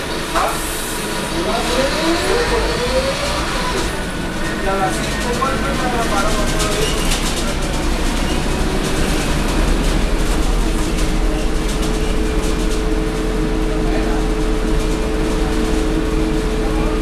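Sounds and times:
bus diesel engine rumble: 0.0 - 17.0
bus body rattles: 3.8 - 17.0.

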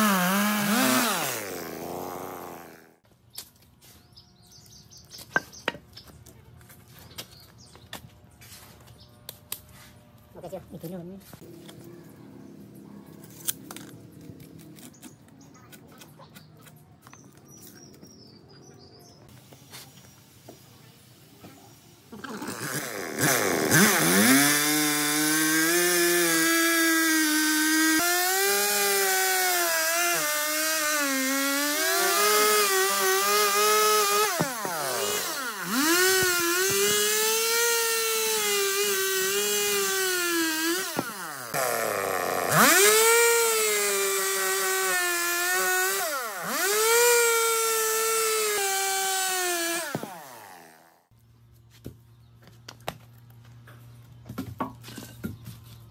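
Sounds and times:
chainsaw cutting wood: 0.0 - 3.0, 22.2 - 51.1.

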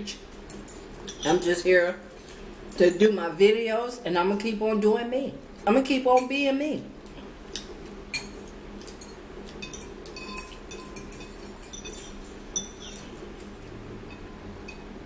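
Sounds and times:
cutlery clinking on ceramic bowls: 0.5 - 1.5, 7.6 - 13.5, 14.1 - 15.0.

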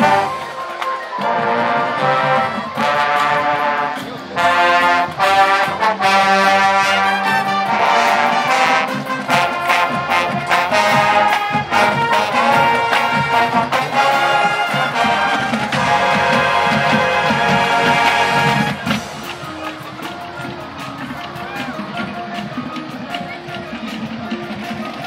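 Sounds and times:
brass held chords: 0.0 - 22.9
marching band playing: 0.0 - 25.0
sharp percussion hits: 7.6 - 25.0.

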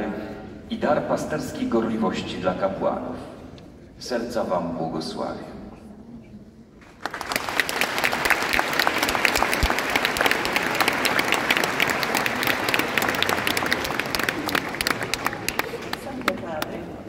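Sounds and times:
crowd applauding: 6.9 - 17.0.

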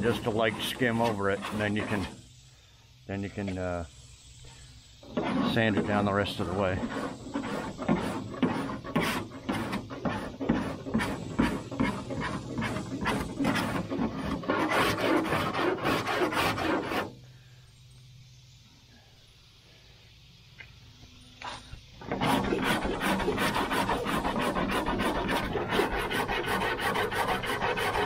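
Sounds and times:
file rasping over filler: 0.0 - 2.2, 5.0 - 17.1, 22.0 - 28.0.

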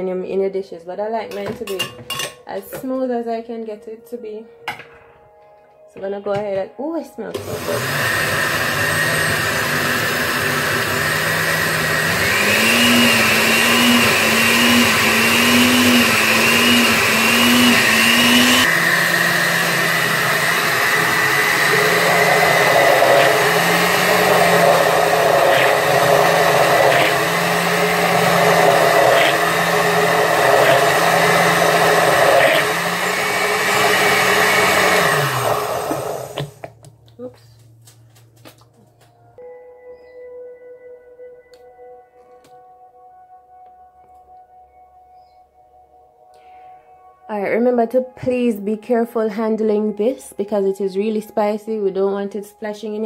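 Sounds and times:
blender motor running: 7.4 - 36.7.

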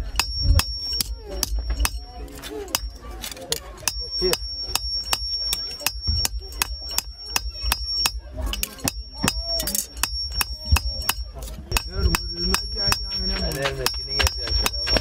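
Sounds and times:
hammer striking sheet metal: 3.8 - 15.0.

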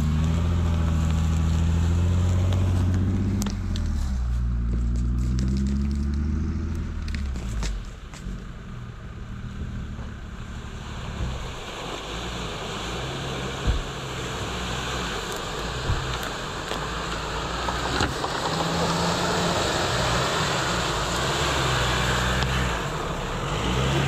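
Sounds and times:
low engine drone: 0.0 - 24.0
splashing water and mud: 10.1 - 24.0
thump: 13.6 - 14.0.

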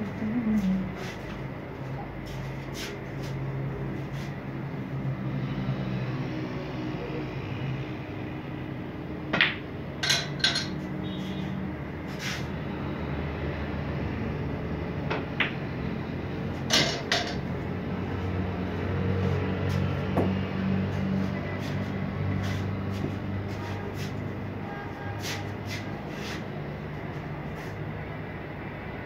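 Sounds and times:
steady low hum: 0.0 - 29.0
snooker balls clacking: 9.3 - 10.8, 16.7 - 17.6.

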